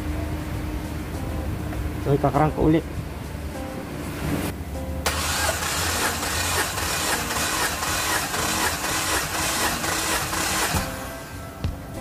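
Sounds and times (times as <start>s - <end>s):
car engine cranking: 5.1s - 11.3s.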